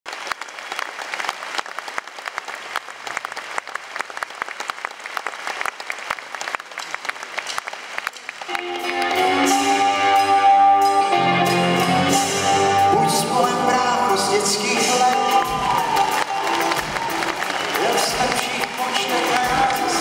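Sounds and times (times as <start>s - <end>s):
audience applauding: 0.1s - 10.5s, 12.1s - 20.0s
band playing: 8.3s - 20.0s.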